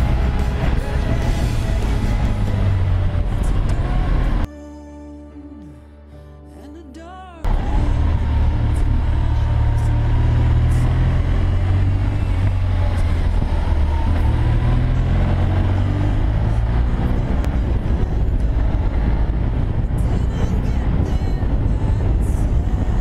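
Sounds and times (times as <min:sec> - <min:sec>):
motorcycle engine drone: 0:00.0 - 0:04.5, 0:07.5 - 0:23.0
wind rushing over microphone: 0:07.5 - 0:23.0.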